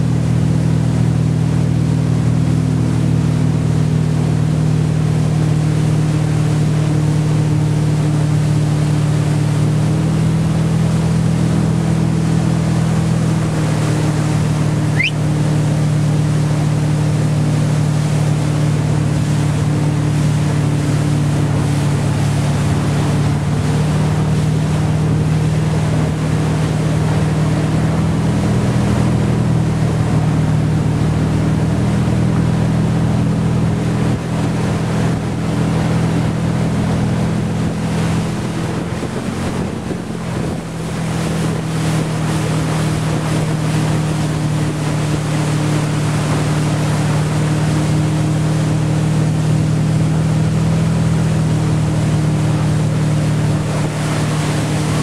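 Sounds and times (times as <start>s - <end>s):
boat engine droning: 0.0s - 55.0s
wake rushing: 0.0s - 55.0s
wind: 0.0s - 55.0s
rising squeak: 14.9s - 15.2s.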